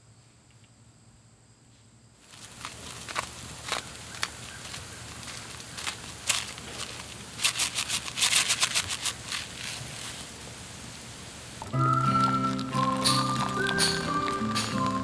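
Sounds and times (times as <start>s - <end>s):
fat popping: 2.3s - 9.3s, 11.6s - 15.0s.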